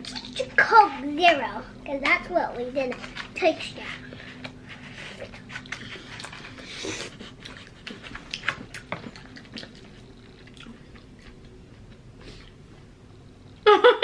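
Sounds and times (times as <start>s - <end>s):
wet chewing: 4.0s - 12.6s.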